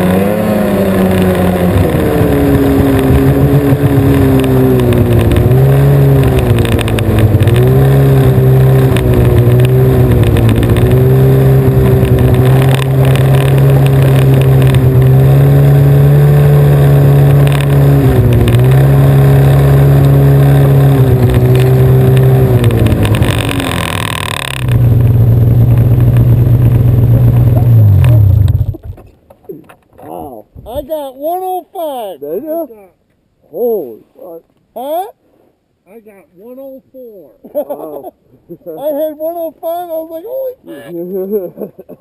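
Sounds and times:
snowmobile engine running hard: 0:00.0 - 0:28.6.

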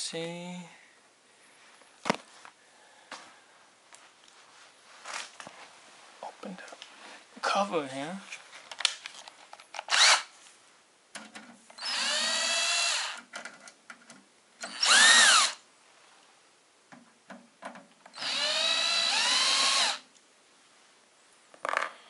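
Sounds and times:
cordless drill whining: 0:09.9 - 0:10.3, 0:11.8 - 0:13.2, 0:14.6 - 0:15.6, 0:18.1 - 0:20.0.

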